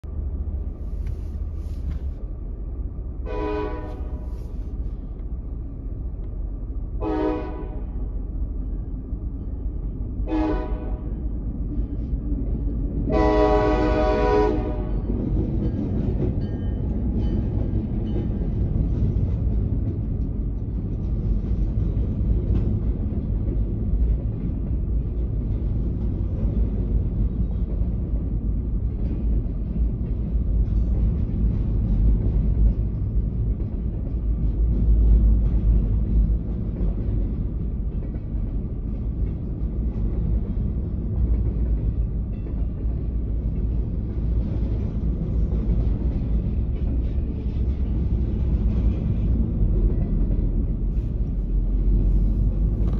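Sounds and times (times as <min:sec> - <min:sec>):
train rumbling across crossing: 0:00.0 - 0:52.9
train horn blasts: 0:03.2 - 0:04.5, 0:07.0 - 0:08.2, 0:10.2 - 0:11.2, 0:13.1 - 0:15.2.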